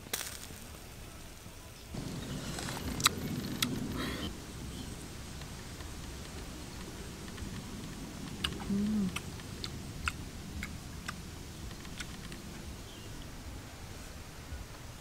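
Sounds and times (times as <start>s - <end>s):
brief low hum: 2.0s - 14.2s
sharp mouth clicks while eating: 7.2s - 12.4s.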